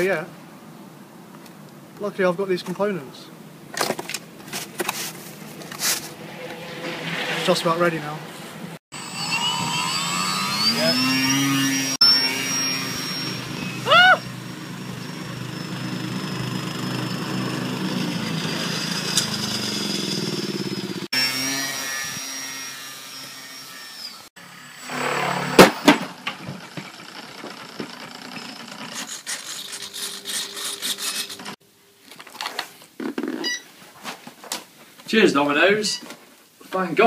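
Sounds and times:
quick scraping strokes: 4.6s - 8.6s, 28.8s - 31.6s
electric propeller motor whining: 9.0s - 31.6s.

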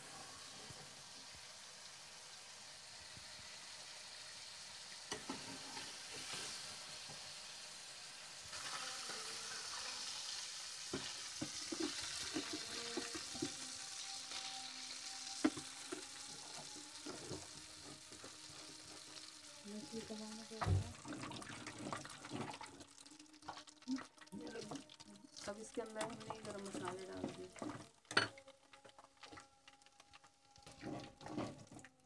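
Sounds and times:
fish sizzling in hot oil: 0.0s - 32.0s
metal spoon scraping a pan: 5.1s - 6.8s, 11.0s - 16.3s.

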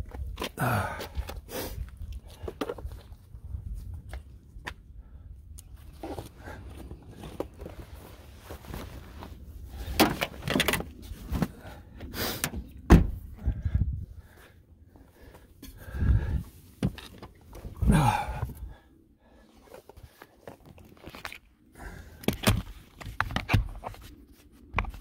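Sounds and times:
car door shutting: 12.5s - 13.2s.

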